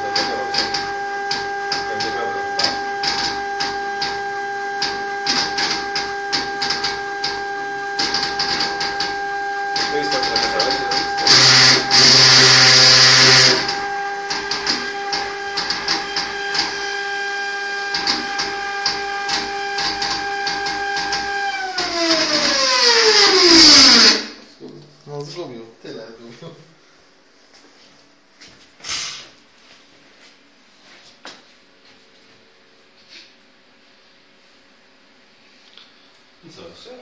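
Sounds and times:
motor drive whine and ticking: 0:00.0 - 0:25.9.

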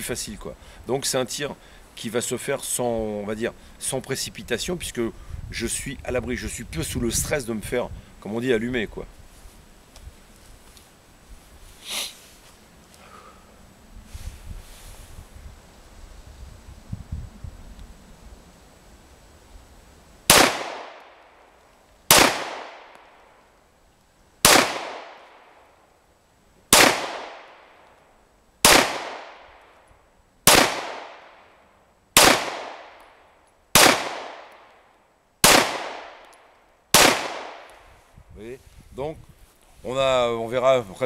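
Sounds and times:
pistol shots with echo: 0:20.3 - 0:21.0, 0:22.1 - 0:23.0, 0:24.4 - 0:25.4, 0:26.7 - 0:27.7, 0:28.6 - 0:29.5, 0:30.5 - 0:31.4, 0:32.2 - 0:33.0, 0:33.8 - 0:34.6, 0:35.4 - 0:36.3, 0:36.9 - 0:37.7.

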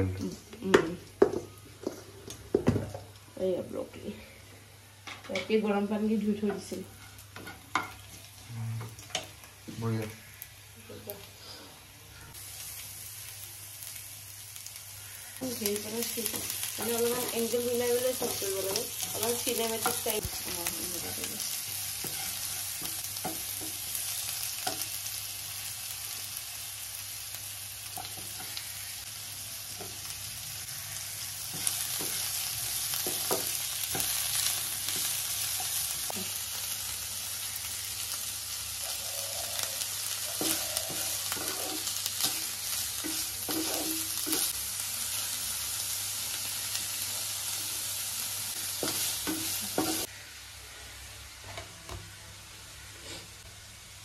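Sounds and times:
garlic and onions sizzling in oil: 0:00.0 - 0:54.0
wooden spatula scraping pan: 0:40.4 - 0:42.4.

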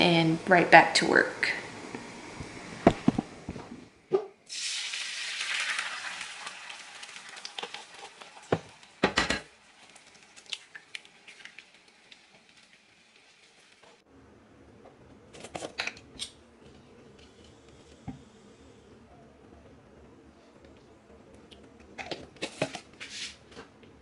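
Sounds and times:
egg sizzling in pan: 0:04.5 - 0:14.0.

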